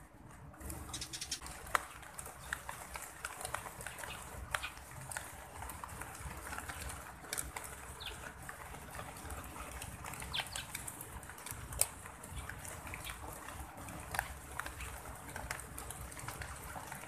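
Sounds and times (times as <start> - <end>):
sparrows chirping: 0.6 - 5.4, 6.1 - 11.0, 12.2 - 15.0.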